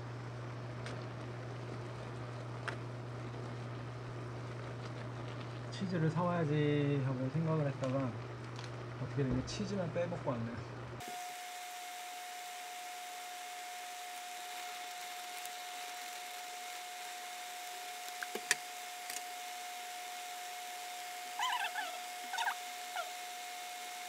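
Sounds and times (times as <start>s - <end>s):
noodles boiling in pot: 0.0s - 24.0s
short squeaky chirps: 21.4s - 23.2s.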